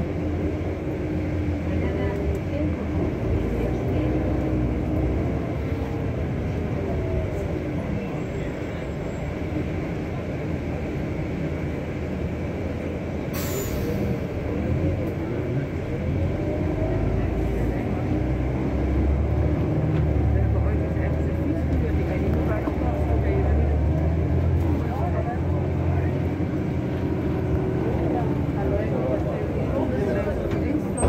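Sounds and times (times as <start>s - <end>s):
vehicle engine and road noise: 0.0s - 31.0s
short hiss: 13.3s - 14.2s.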